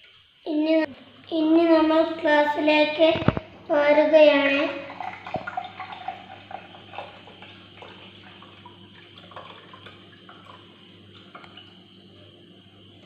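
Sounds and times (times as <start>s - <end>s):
liquid pouring into a mug: 4.7s - 12.2s.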